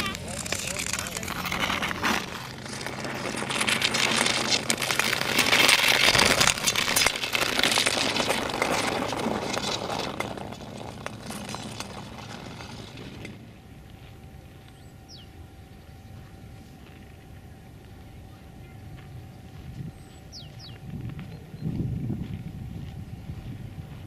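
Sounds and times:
skate blades scraping on ice: 0.0s - 13.5s.

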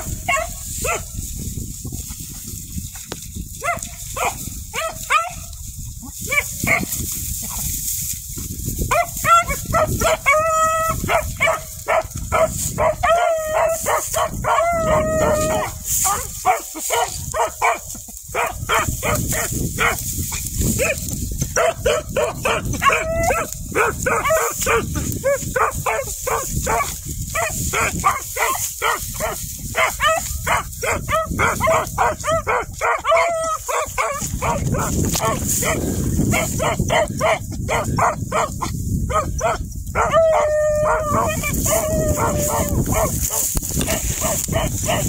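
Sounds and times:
dogs barking: 0.0s - 1.2s, 3.6s - 5.4s, 6.2s - 7.0s, 8.9s - 45.0s
dogs baying: 8.9s - 20.0s, 20.7s - 45.0s.

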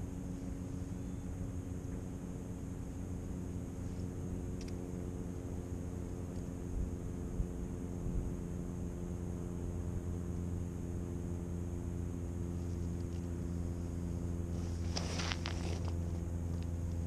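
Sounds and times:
low mechanical drone: 0.0s - 17.0s
crunching scraping clicks: 14.8s - 16.7s.

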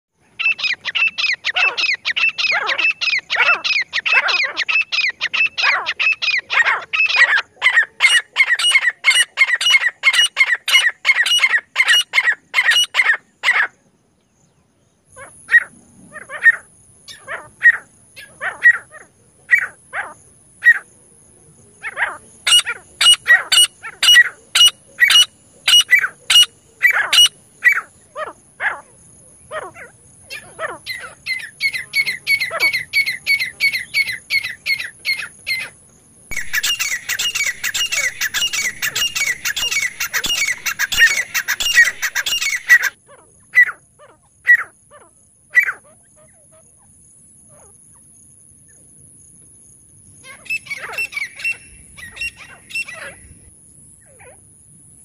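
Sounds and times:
francolins calling shrill notes: 36.3s - 43.0s.

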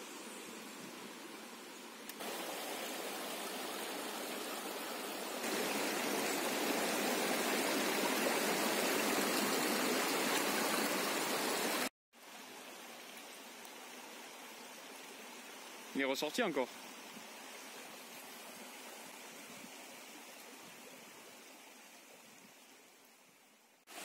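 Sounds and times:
river water rushing over rocks: 2.2s - 11.9s.

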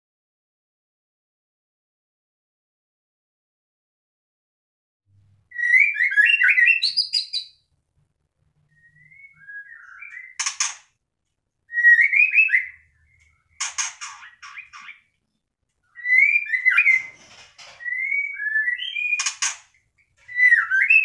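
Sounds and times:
bird singing warbled whistles: 5.5s - 7.6s, 8.7s - 10.5s, 11.7s - 13.2s, 15.9s - 17.1s, 17.8s - 19.4s, 20.3s - 21.0s.

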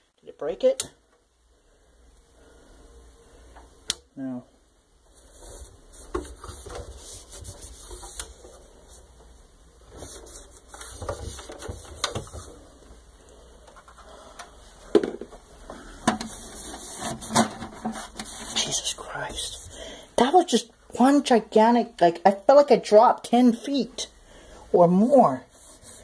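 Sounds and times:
cloth rubbing and scraping: 5.1s - 9.2s, 16.3s - 19.8s, 24.9s - 26.0s.

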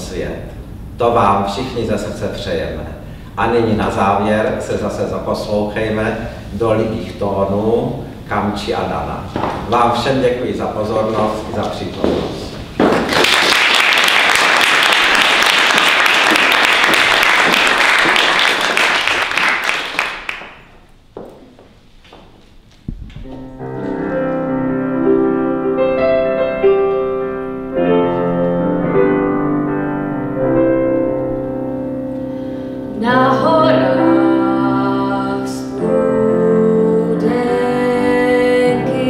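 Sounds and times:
audience applauding: 12.8s - 20.8s
digital piano playing: 23.2s - 39.0s
young woman singing: 33.0s - 39.0s.

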